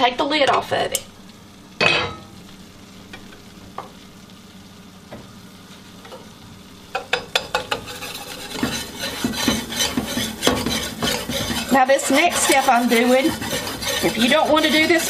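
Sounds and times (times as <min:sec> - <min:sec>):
faint steady hiss: 0:00.0 - 0:08.7
sizzling: 0:00.0 - 0:15.0
whisk scraping metal pan: 0:07.0 - 0:15.0.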